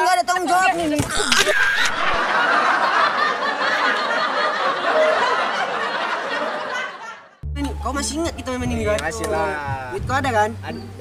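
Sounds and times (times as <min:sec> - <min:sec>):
laugh track: 0:01.2 - 0:07.8.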